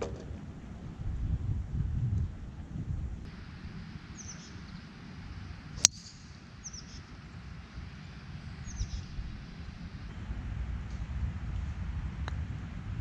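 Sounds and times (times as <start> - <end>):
low wind rumble: 0.0 - 13.0
small birds chirping: 4.1 - 5.0, 5.8 - 7.1, 8.0 - 9.3
golf club striking ball: 5.8 - 6.2.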